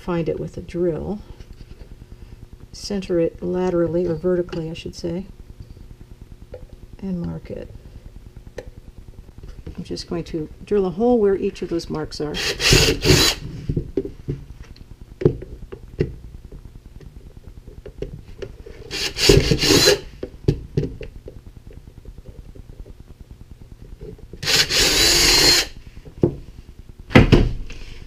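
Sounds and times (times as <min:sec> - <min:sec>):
cordless drill boring plastic: 0:12.4 - 0:13.4, 0:18.8 - 0:20.2, 0:24.4 - 0:25.8.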